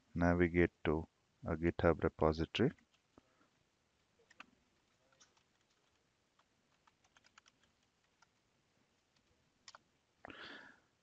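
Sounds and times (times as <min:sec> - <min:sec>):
computer keyboard typing: 0:04.2 - 0:08.4, 0:09.0 - 0:09.8.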